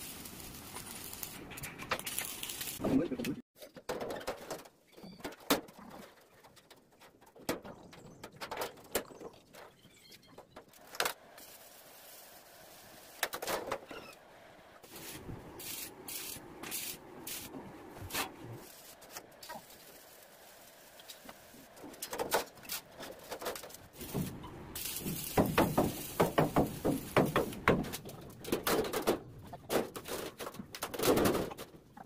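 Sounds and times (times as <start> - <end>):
short hissing bursts: 14.8 - 21.7, 23.9 - 27.6.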